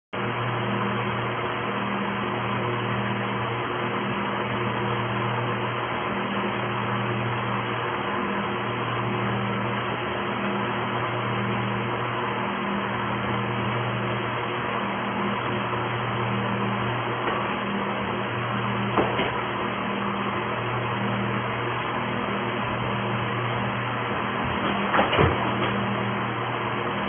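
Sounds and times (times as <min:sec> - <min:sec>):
low electrical hum: 0:00.2 - 0:27.0.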